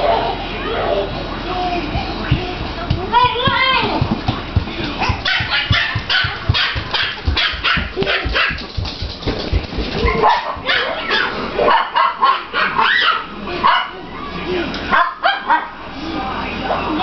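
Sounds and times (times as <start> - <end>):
puppies yelping: 5.0 - 8.7, 10.0 - 14.0
puppies yipping and barking: 5.0 - 9.0, 9.9 - 14.0.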